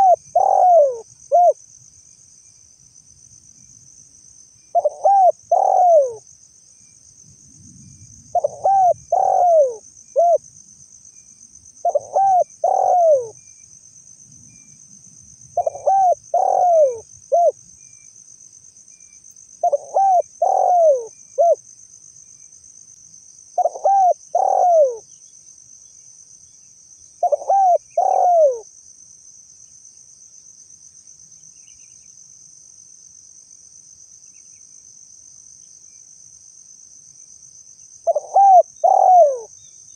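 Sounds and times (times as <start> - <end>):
dove cooing: 0.0 - 1.6, 4.7 - 6.2, 8.3 - 10.4, 11.8 - 13.4, 15.6 - 17.6, 19.6 - 21.6, 23.6 - 25.1, 27.2 - 28.7, 38.0 - 39.5.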